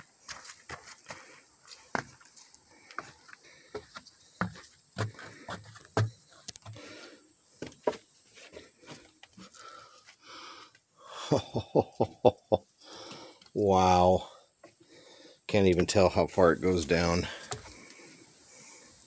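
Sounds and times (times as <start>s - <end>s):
footsteps on wooden stairs: 2.9s - 6.9s, 7.6s - 9.4s.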